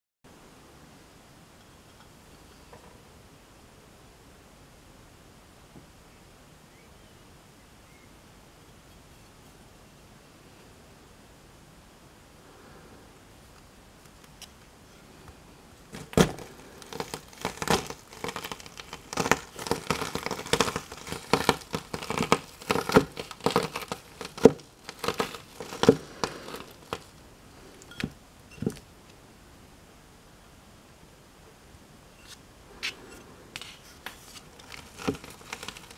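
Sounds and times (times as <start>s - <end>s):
seeds crackling and popping: 15.9s - 28.9s, 32.2s - 35.9s.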